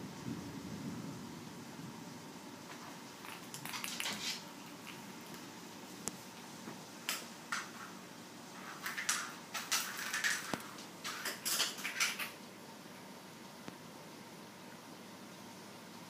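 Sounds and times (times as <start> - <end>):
plastic egg clattering on wood floor: 3.2 - 5.4, 8.7 - 12.4.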